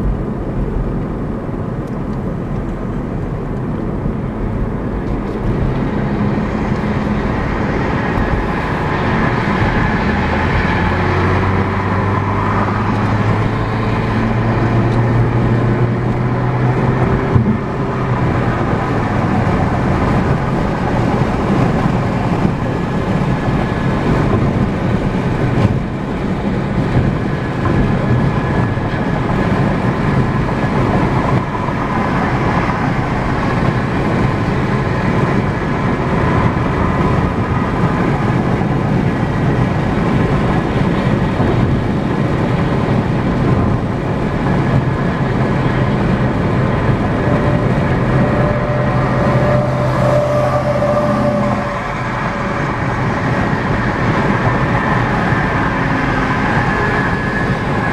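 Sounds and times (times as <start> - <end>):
engine and drivetrain hum: 0.0 - 57.9.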